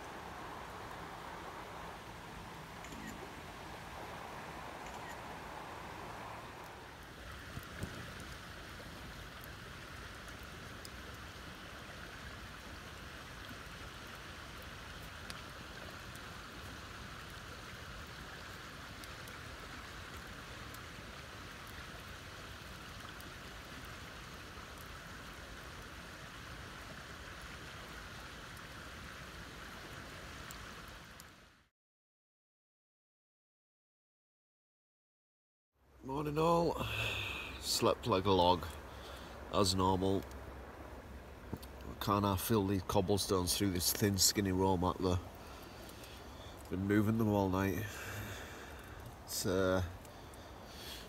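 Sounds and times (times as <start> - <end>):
campfire crackling and popping: 0.0 - 31.5, 36.2 - 51.0
fire rushing hiss: 36.5 - 51.0.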